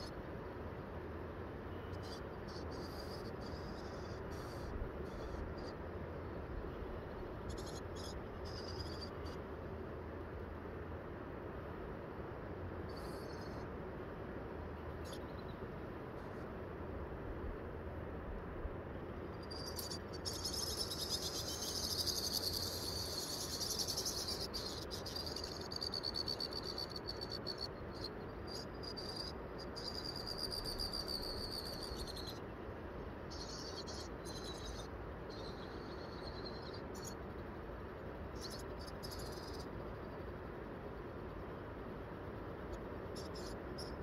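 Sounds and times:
low background hiss: 0.0s - 44.0s
insects trilling: 1.7s - 9.5s, 12.8s - 13.8s, 15.0s - 16.4s, 19.1s - 44.0s.

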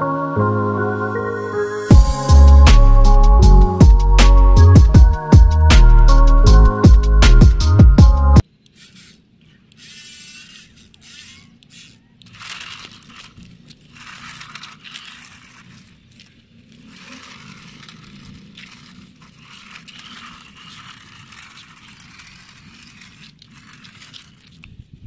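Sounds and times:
toy car wheels scraping on grit: 8.6s - 24.9s.

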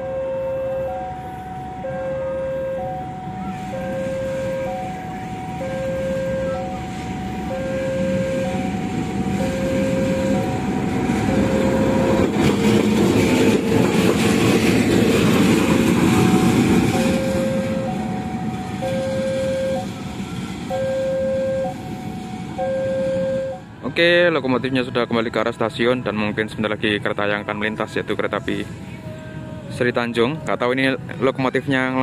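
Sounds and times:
level crossing alarm two-tone: 0.0s - 12.5s, 16.2s - 23.7s
diesel locomotive passing: 0.0s - 32.0s.

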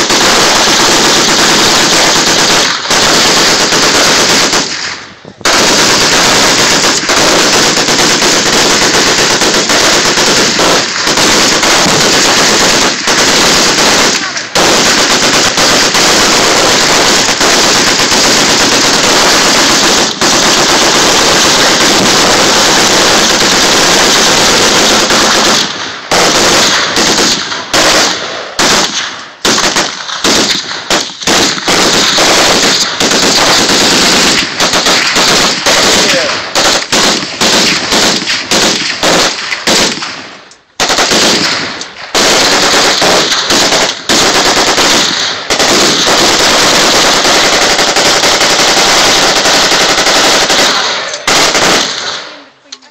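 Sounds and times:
machine guns firing: 0.0s - 52.4s.

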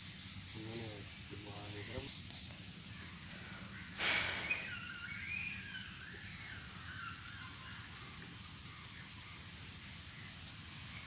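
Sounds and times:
bird warbling calls: 0.0s - 11.0s
faint outdoor background: 0.0s - 11.0s.

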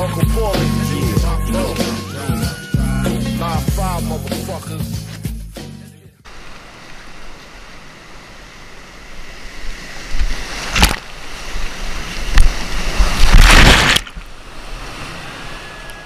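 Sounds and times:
sharp water splash: 9.9s - 15.2s
loud crash of water: 10.2s - 15.6s.

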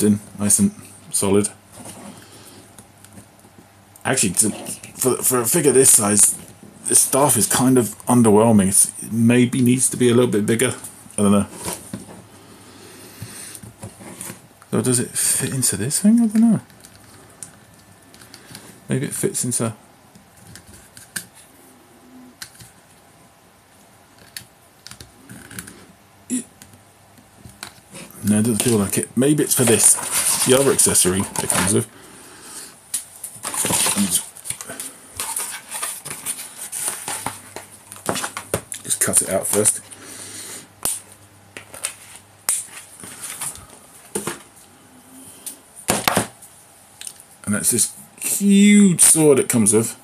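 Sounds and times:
plastic and cardboard rustling: 27.3s - 31.9s, 33.2s - 39.8s.

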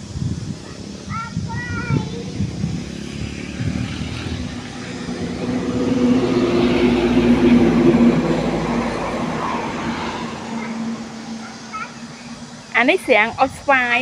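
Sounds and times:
vehicle driving past: 2.0s - 12.9s.

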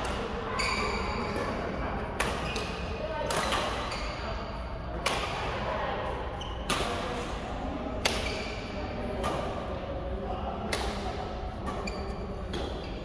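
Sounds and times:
shoe squeaks on court floor: 0.5s - 1.6s, 3.4s - 4.6s, 11.7s - 13.0s
rackets striking shuttlecock: 2.2s - 3.9s, 5.0s - 5.5s, 6.6s - 7.2s, 8.0s - 9.6s, 10.7s - 12.9s.

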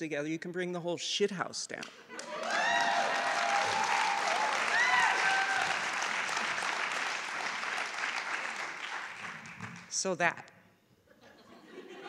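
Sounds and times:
audience applauding and cheering: 2.1s - 9.9s
whoops: 2.2s - 6.0s.

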